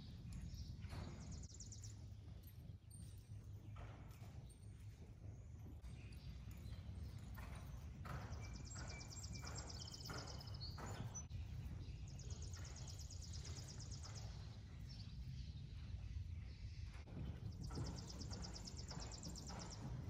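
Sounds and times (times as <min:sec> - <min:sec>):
hoofbeats on sand: 0:00.1 - 0:20.0.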